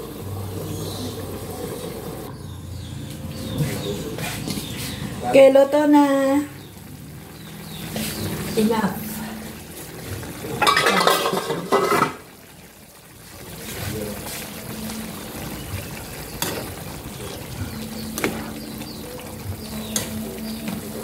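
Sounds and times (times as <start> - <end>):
sauce bubbling in frying pan: 4.4 - 21.0.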